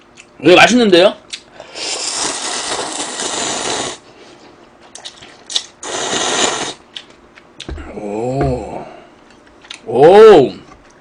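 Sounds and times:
person slurping noodles: 0:01.6 - 0:04.1, 0:05.8 - 0:06.8
slurping broth from bowl: 0:01.8 - 0:04.0, 0:05.8 - 0:06.8.

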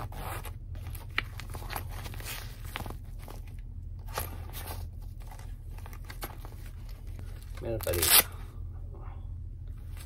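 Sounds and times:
fabric wallet rustling: 0:00.0 - 0:08.0
low steady hum: 0:00.0 - 0:10.0.

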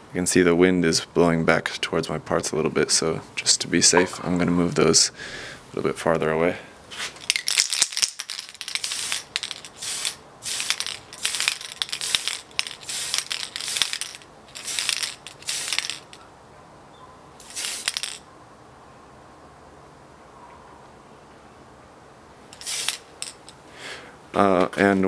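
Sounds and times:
aerosol spray paint hissing: 0:08.3 - 0:16.1, 0:17.4 - 0:18.0, 0:22.6 - 0:23.1.

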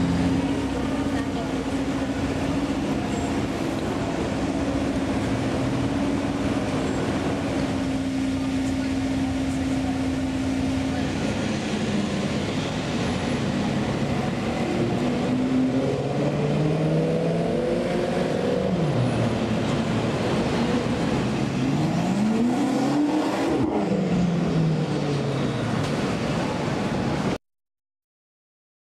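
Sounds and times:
city traffic noise: 0:00.0 - 0:27.4
car engine revving: 0:19.9 - 0:24.5.

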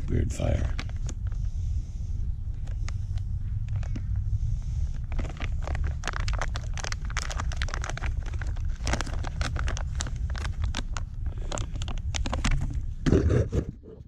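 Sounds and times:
low rumble: 0:00.0 - 0:14.0
plastic packaging crackling: 0:00.4 - 0:01.4, 0:04.9 - 0:13.0.

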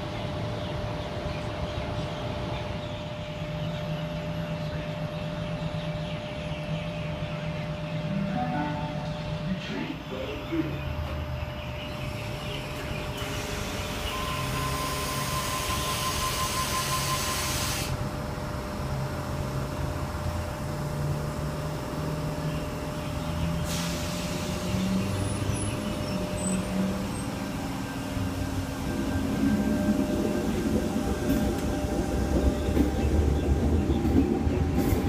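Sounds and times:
train equipment hum: 0:00.0 - 0:35.0
steady warning tone: 0:07.2 - 0:13.2, 0:13.8 - 0:17.5
air hiss of train doors: 0:14.9 - 0:18.0, 0:23.6 - 0:24.8.

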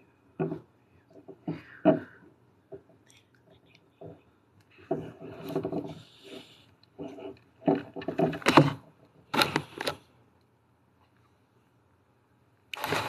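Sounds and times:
phone handling rubbing and knocking: 0:04.9 - 0:06.4, 0:07.0 - 0:10.0.

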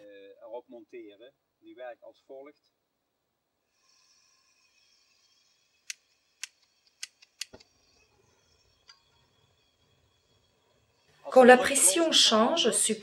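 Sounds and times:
gas hissing from burner: 0:03.6 - 0:13.0
valve fittings clicking: 0:04.2 - 0:10.5.

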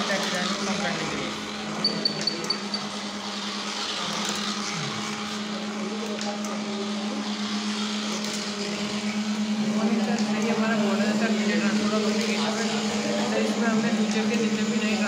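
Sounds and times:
background chatter: 0:00.0 - 0:15.0
faint high beeps: 0:01.8 - 0:02.9.

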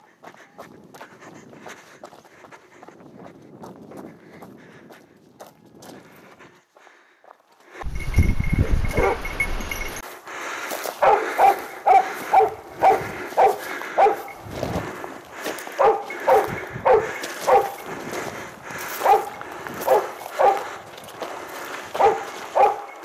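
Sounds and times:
dog barking: 0:08.9 - 0:09.3, 0:11.0 - 0:14.4, 0:15.7 - 0:17.8, 0:19.0 - 0:20.8, 0:22.0 - 0:23.0.

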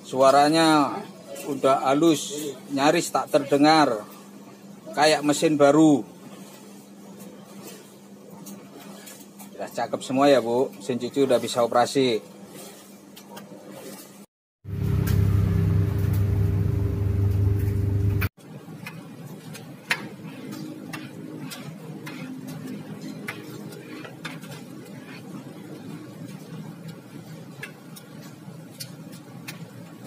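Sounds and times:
clothes dryer humming: 0:14.6 - 0:28.6.

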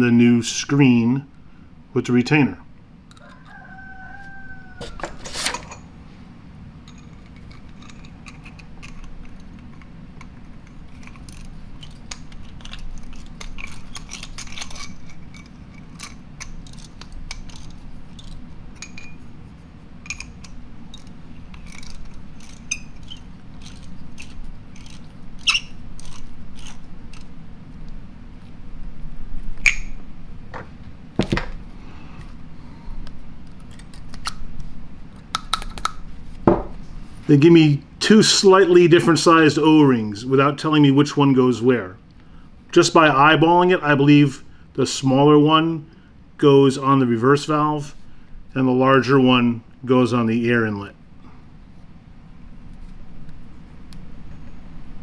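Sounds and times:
steady low hum: 0:00.0 - 0:55.0
small metal parts clicking: 0:06.9 - 0:19.2, 0:20.0 - 0:27.3.

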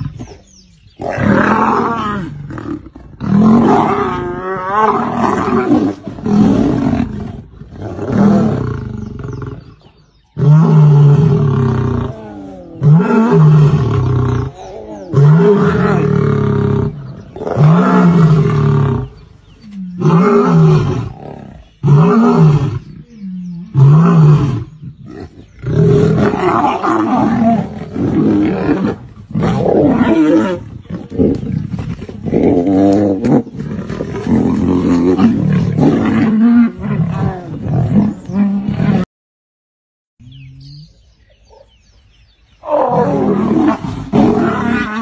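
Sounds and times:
growls: 0:00.0 - 0:39.1, 0:42.6 - 0:45.0
lions roaring: 0:01.0 - 0:39.0, 0:42.6 - 0:45.0
elephant roaring: 0:42.6 - 0:45.0.

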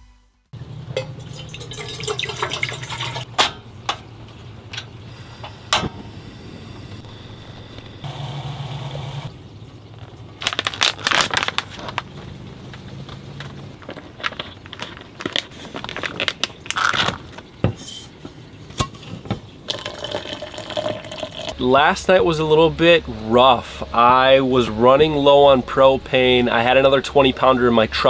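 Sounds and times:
low steady hum: 0:00.6 - 0:28.0
water pouring into metal pot: 0:01.0 - 0:03.3, 0:19.7 - 0:21.6
plastic bag crinkling and tearing: 0:10.4 - 0:12.3, 0:13.4 - 0:17.5.

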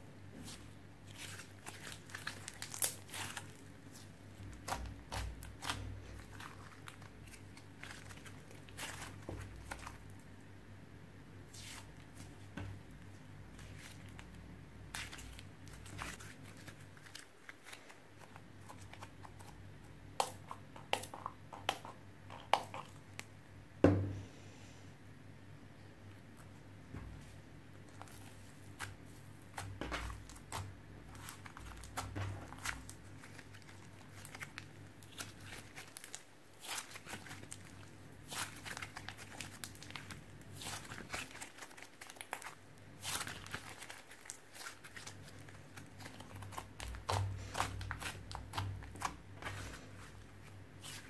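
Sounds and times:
slime clicking and crackling: 0:01.2 - 0:10.2, 0:27.9 - 0:49.7.

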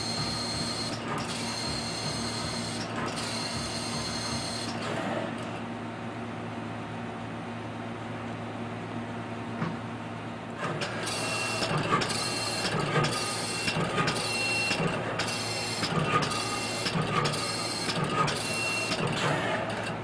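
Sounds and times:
gantry head moving with whine: 0:00.0 - 0:05.7, 0:10.6 - 0:20.0
machine low hum: 0:00.0 - 0:20.0.

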